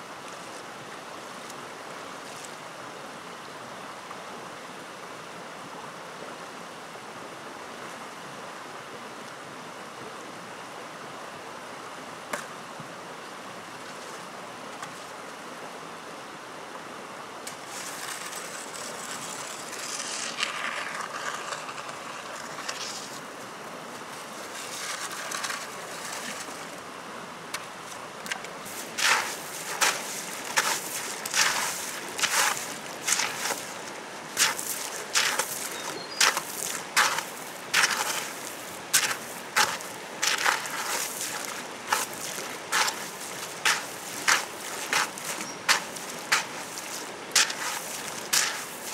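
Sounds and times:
river flowing over stones: 0.0 - 48.9
scraping sounds: 17.5 - 23.3, 24.0 - 26.7, 28.7 - 48.9
hoe chopping into wet gravel: 28.7 - 33.8, 34.4 - 48.9.

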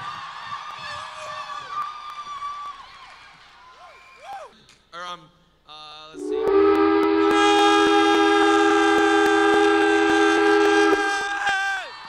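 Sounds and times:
train horn chord: 6.2 - 11.5.

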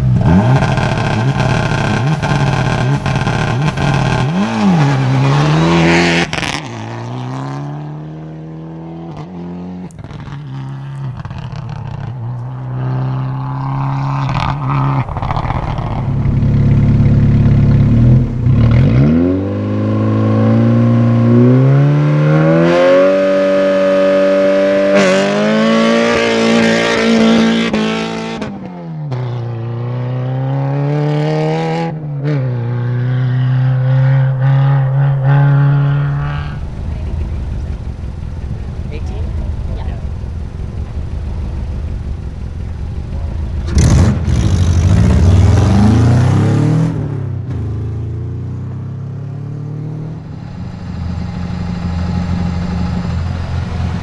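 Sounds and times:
car engine idling: 0.0 - 6.7, 9.8 - 18.8, 33.0 - 46.0, 47.4 - 54.0
rally car revving and pulling away: 0.0 - 54.0
gravel noise: 9.7 - 19.4, 33.1 - 46.5, 47.4 - 54.0.

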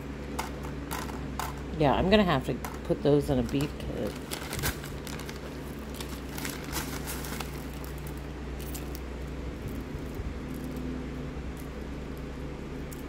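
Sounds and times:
low hum: 0.0 - 13.0
plastic bag crinkling: 2.7 - 9.0.

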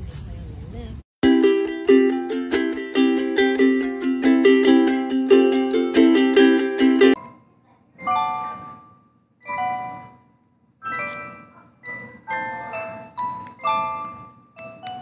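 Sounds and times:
plucked ukulele tune: 1.2 - 7.2.

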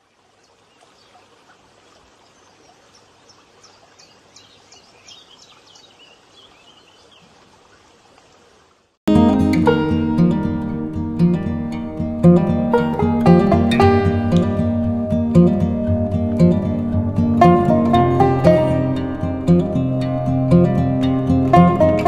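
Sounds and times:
small birds chirping: 0.0 - 8.5
running water: 0.0 - 10.9
acoustic guitar music: 9.1 - 22.0.

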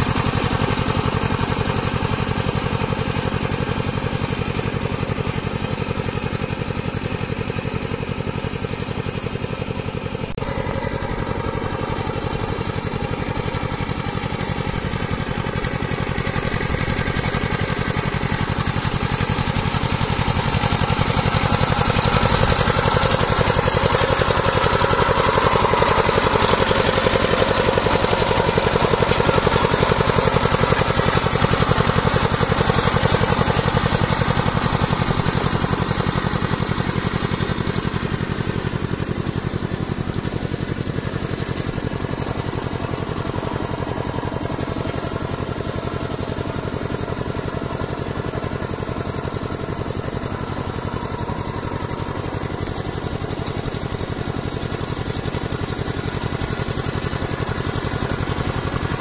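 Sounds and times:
power tiller engine thudding: 0.0 - 59.0.

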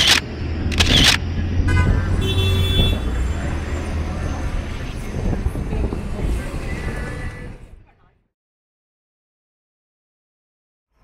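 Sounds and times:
sharp clicks: 0.0 - 1.2
traffic rumble: 0.0 - 8.3
vehicle horn: 1.6 - 3.2.

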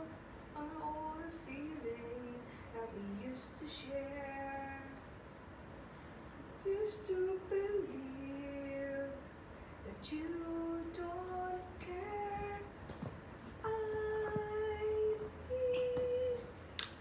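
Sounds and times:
woman singing slow melody: 0.0 - 5.0, 9.9 - 12.7, 13.6 - 16.6.

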